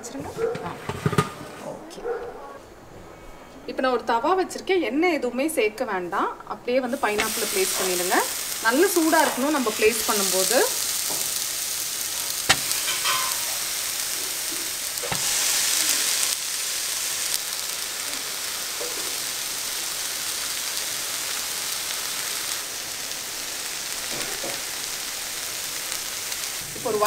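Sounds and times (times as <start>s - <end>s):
fruit sizzling on a hot pan: 6.7s - 27.0s.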